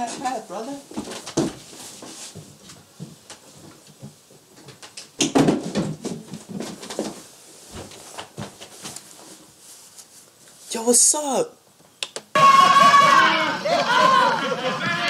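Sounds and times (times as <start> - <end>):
knocks and rustling: 0.0 - 10.1.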